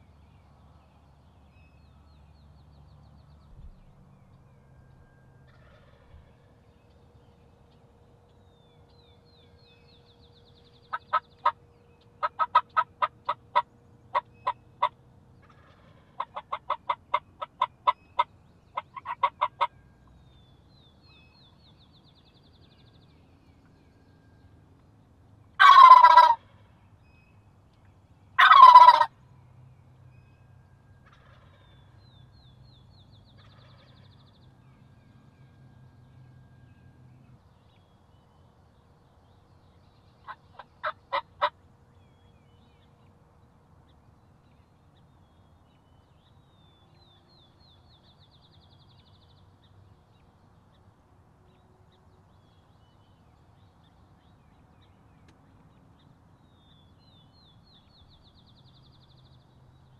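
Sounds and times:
turkey call yelps: 12.2 - 14.9, 15.7 - 19.7, 25.6 - 26.4, 28.4 - 29.1, 40.3 - 41.5
turkey gobbling: 12.2 - 19.7, 25.6 - 26.4, 28.4 - 29.1, 40.3 - 41.5.

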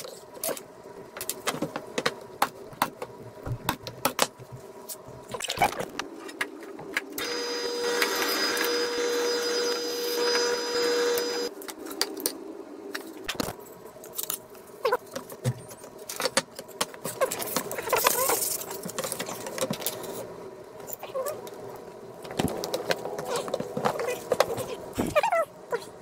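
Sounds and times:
drill press motor humming: 7.2 - 11.5.

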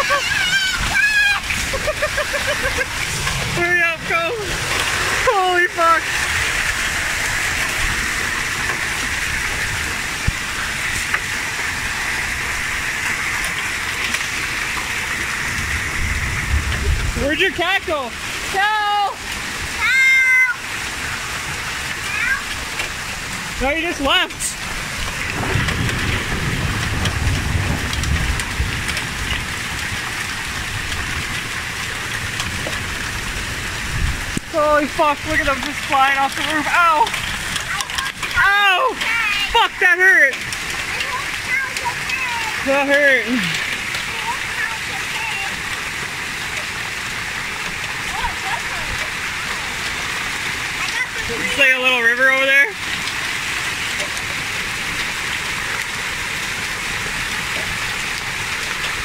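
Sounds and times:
hail and rain pelting down: 0.0 - 59.0
hailstones ticking: 0.0 - 59.0
low rumble: 0.7 - 18.3, 24.5 - 35.8.

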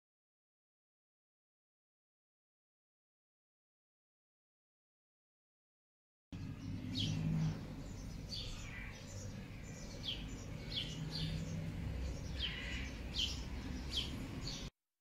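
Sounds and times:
small birds chirping: 6.4 - 14.7.

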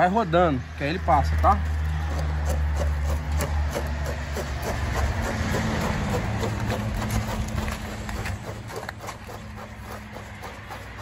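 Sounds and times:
plastic conduit scraping on brick: 1.8 - 11.0.

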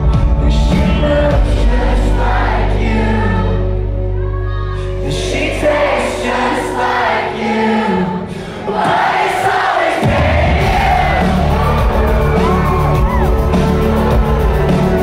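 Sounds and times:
indie pop band playing: 0.0 - 5.8, 10.1 - 15.0
low bass: 0.0 - 6.8, 10.6 - 15.0
lead singer singing: 0.0 - 15.0.

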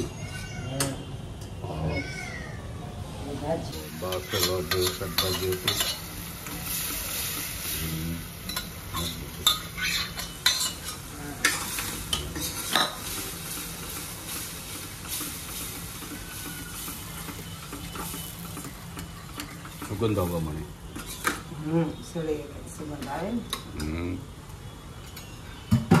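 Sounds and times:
food sizzling in oil: 3.6 - 23.6
spoon scraping a steel pot: 8.5 - 13.0.

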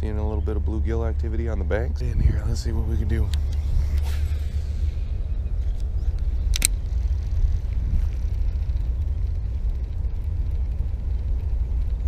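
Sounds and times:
wind rumbling on microphone: 0.0 - 12.0
sharp click: 5.8 - 6.8
fishing reel ticking: 5.8 - 12.0.

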